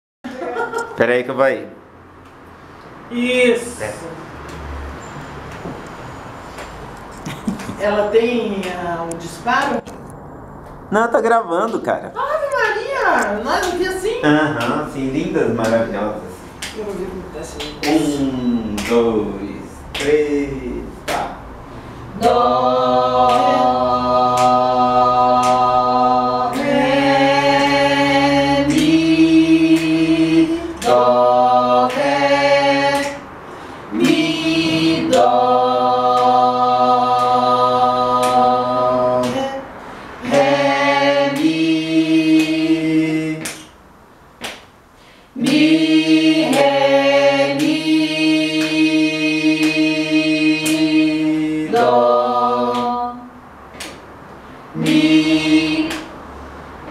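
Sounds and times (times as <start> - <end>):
women singing a cappella: 22.0 - 43.7, 45.3 - 54.0, 54.7 - 56.9.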